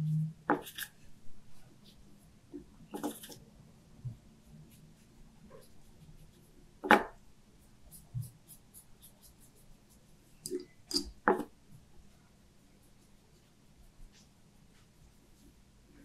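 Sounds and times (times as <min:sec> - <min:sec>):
paintbrush scratching on paper: 0:02.9 - 0:03.4, 0:04.4 - 0:06.9, 0:07.6 - 0:10.4.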